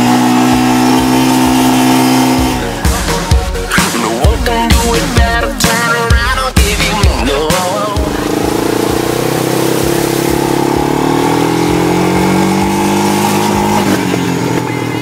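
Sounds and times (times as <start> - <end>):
quad bike engine running: 0.0 - 15.0.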